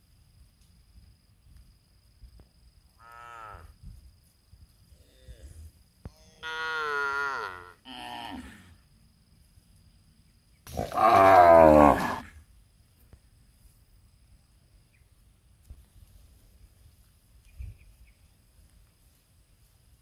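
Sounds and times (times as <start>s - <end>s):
cattle mooing: 10.8s - 12.2s.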